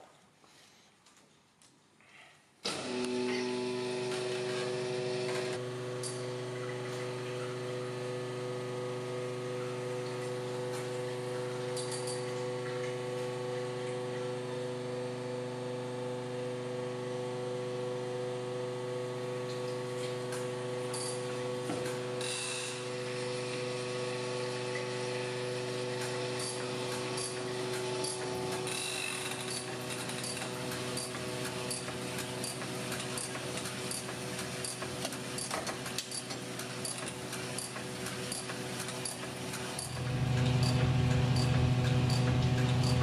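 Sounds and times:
honing machine humming: 39.0s - 43.0s.

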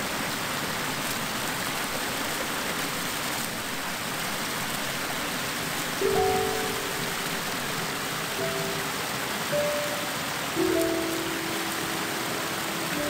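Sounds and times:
water rushing over a weir: 0.0s - 13.0s
held musical tones: 6.0s - 13.0s.

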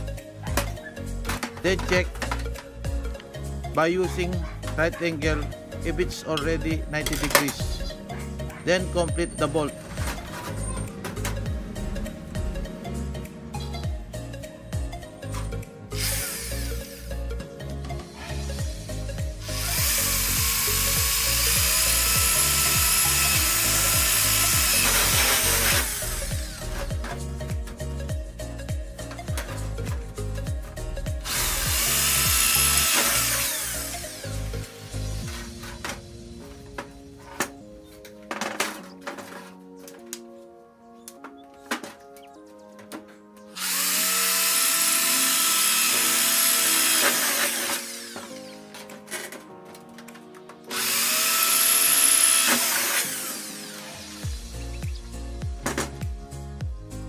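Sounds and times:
light background music: 0.0s - 57.0s
power drill boring through sheet metal: 16.0s - 17.1s, 18.6s - 27.2s, 31.1s - 36.0s, 43.6s - 49.4s, 50.7s - 54.6s.

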